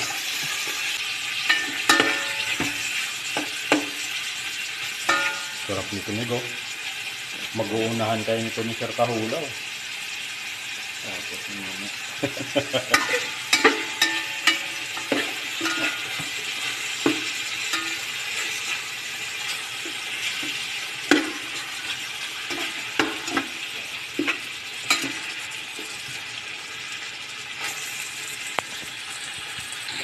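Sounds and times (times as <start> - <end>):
meat sizzling in a pot: 0.0 - 30.0
metal spoon scraping pot: 12.9 - 23.6.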